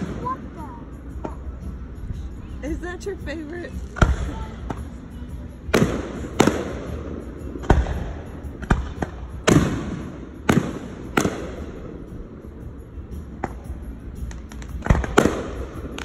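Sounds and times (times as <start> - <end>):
firework shells bursting: 5.6 - 11.9, 13.3 - 16.0.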